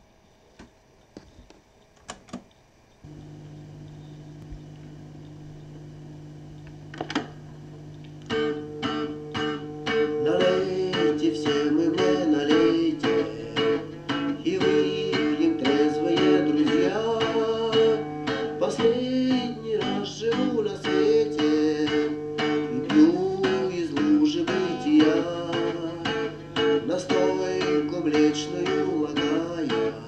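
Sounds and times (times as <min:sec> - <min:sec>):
tape hum: 0:00.4 - 0:09.6
acoustic guitar music from speakers: 0:06.8 - 0:30.0.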